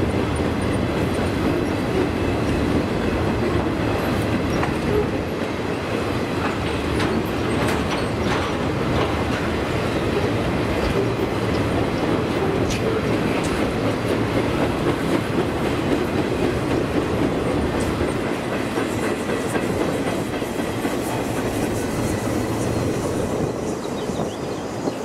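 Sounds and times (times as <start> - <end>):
wheels clacking over rail joints: 0.0 - 23.8
train wheels rumbling on rails: 0.0 - 25.0.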